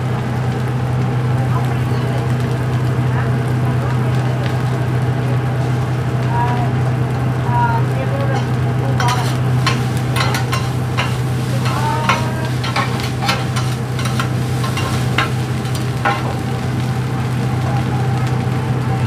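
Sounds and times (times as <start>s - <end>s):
fried rice sizzling: 0.0s - 19.0s
steady low hum: 8.3s - 18.7s
metal spatulas scraping griddle: 8.4s - 16.6s.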